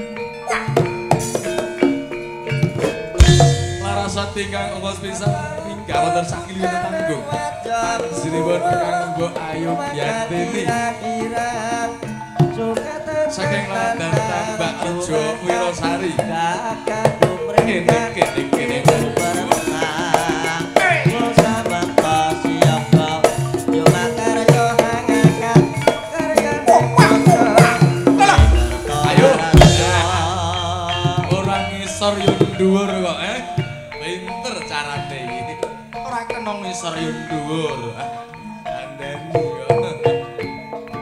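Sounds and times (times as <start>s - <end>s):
hand drums: 0.0s - 41.0s
metallophone tones: 0.0s - 41.0s
heavy drum stroke: 3.2s - 7.2s, 28.2s - 32.5s
person singing: 3.2s - 41.0s.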